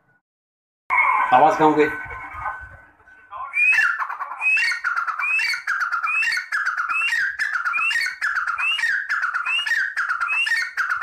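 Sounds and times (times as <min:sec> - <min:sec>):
francolin calling: 0:03.5 - 0:11.0.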